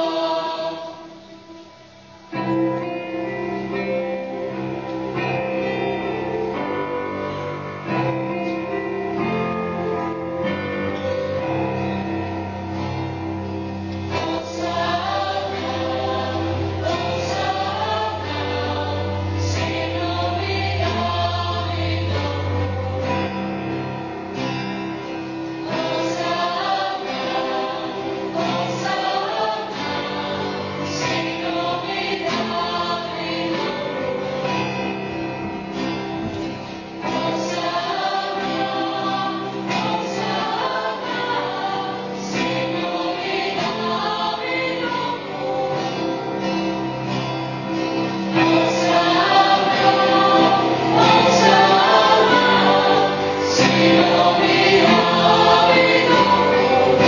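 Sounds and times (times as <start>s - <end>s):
choir singing: 0.0s - 57.0s.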